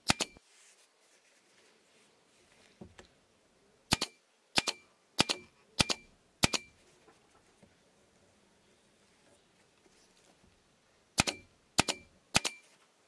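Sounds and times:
staple gun firing: 0:11.2 - 0:12.6.

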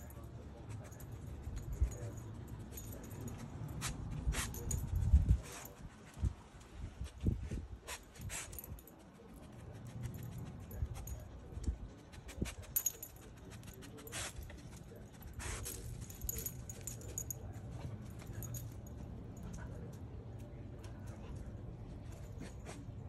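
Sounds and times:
collar tags jingling: 0:00.0 - 0:06.2, 0:07.9 - 0:23.0
dog sniffing: 0:03.8 - 0:06.3, 0:07.8 - 0:08.8, 0:12.0 - 0:16.7, 0:22.2 - 0:23.0.

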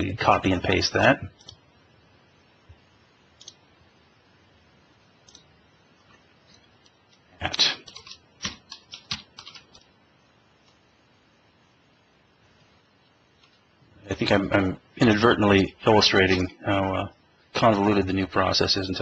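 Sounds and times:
computer keyboard typing: 0:01.3 - 0:01.6, 0:03.4 - 0:03.6, 0:05.2 - 0:05.5, 0:07.8 - 0:09.9.

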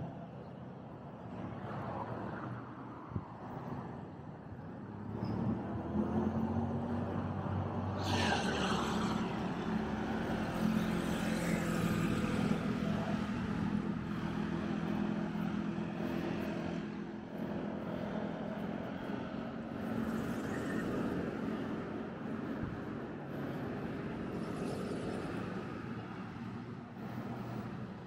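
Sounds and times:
cars passing close by: 0:04.8 - 0:28.0
steady engine drone: 0:06.8 - 0:28.0.

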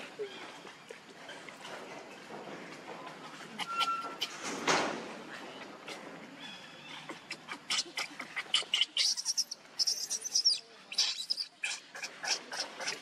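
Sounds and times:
baby monkey squeaking and squealing: 0:07.4 - 0:13.0.

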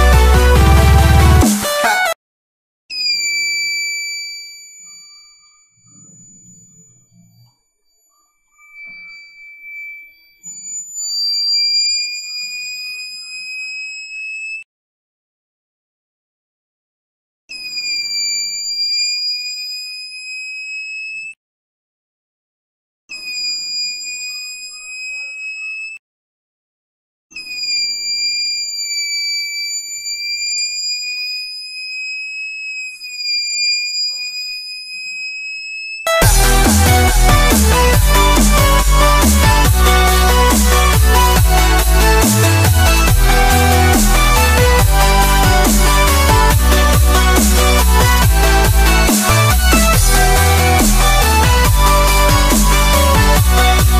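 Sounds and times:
electronic buzzer high tone: 0:02.9 - 0:14.6, 0:23.1 - 0:26.0, 0:27.4 - 0:53.9.

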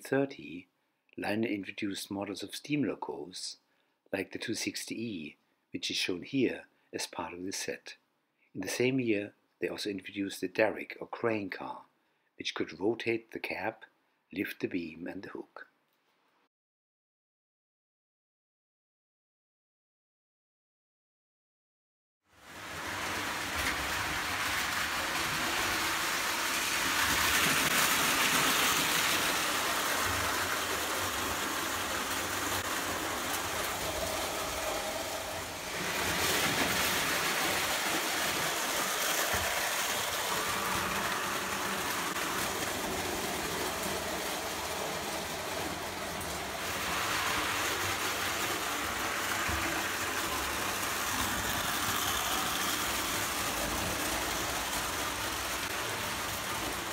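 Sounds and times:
toy train wheels and motors: 0:22.4 - 0:56.9.

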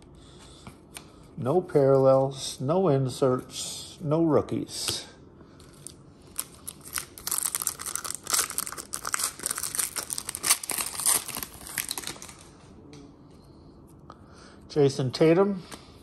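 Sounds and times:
foil wrapper tearing and crinkling: 0:05.8 - 0:12.5.

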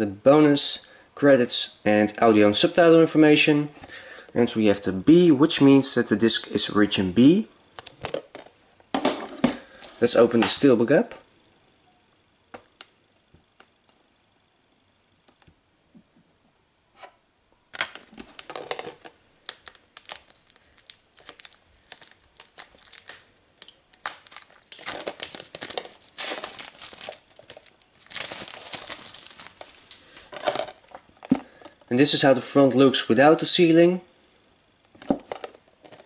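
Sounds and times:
shrink-wrap peeling and crinkling: 0:17.9 - 0:31.0.

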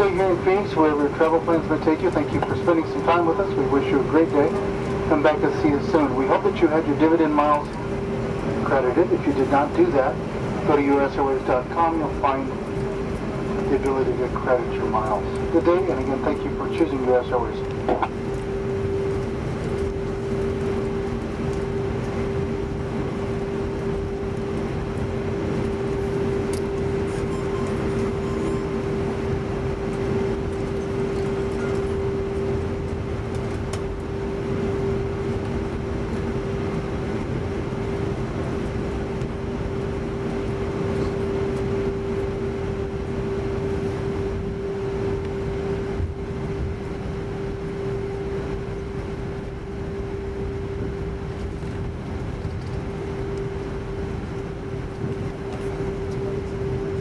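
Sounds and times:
airplane cabin noise: 0:00.0 - 0:57.0
constant hum: 0:00.0 - 0:57.0.

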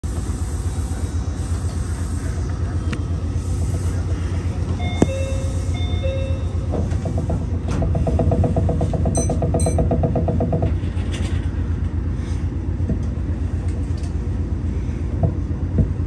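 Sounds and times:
electronic two-note chimes: 0:04.8 - 0:06.6.

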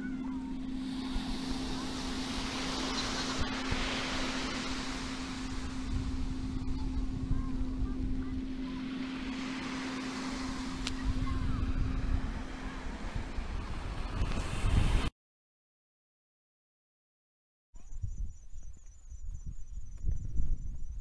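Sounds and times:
steady low hum: 0:00.0 - 0:14.7
waves washing onto beach: 0:00.0 - 0:15.1
wind buffeting microphone: 0:00.0 - 0:15.1, 0:17.8 - 0:21.0.

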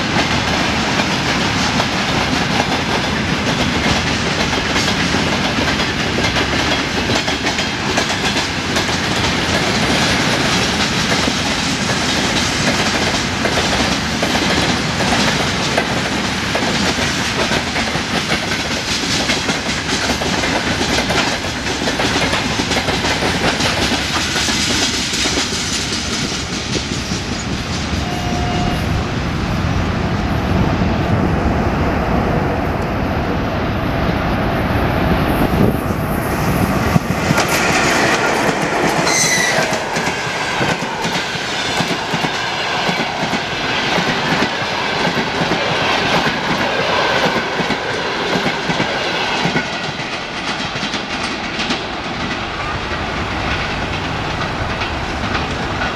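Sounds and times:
train wheels clattering over rail joints: 0:00.0 - 0:28.0, 0:36.8 - 0:55.9
rumble of rolling train: 0:00.0 - 0:55.9
short tone: 0:28.0 - 0:28.9.

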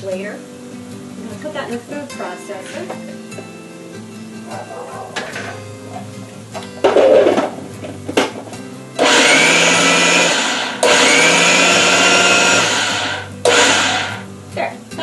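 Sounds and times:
food processor motor running: 0:09.0 - 0:14.2.

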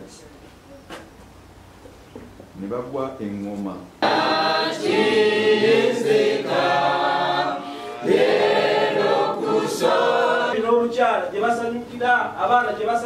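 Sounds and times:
congregation singing a hymn: 0:04.0 - 0:11.0.

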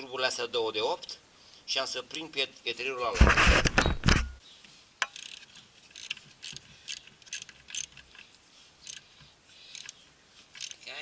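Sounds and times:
socket ratchet clicking: 0:05.0 - 0:08.2, 0:08.8 - 0:09.1, 0:09.7 - 0:10.9.

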